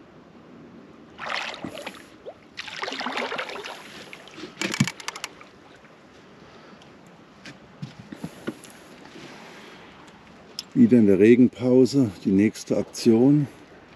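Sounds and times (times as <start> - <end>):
water splashing: 1.1 - 6.0
fishing rod handling rustling: 4.4 - 5.4
fishing reel clicks: 4.6 - 5.4.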